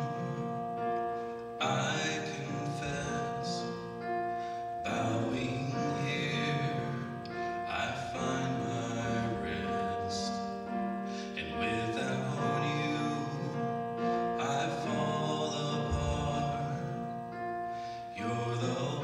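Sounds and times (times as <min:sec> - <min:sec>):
slow music with held notes: 0:00.0 - 0:19.0.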